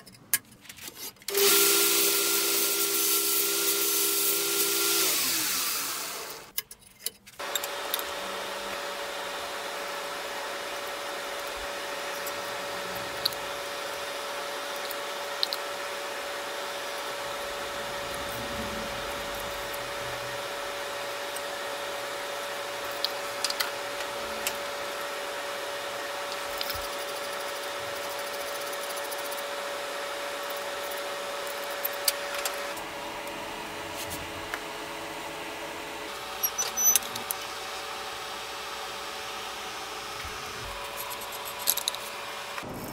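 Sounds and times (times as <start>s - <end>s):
gas forge roaring: 7.4s - 42.9s.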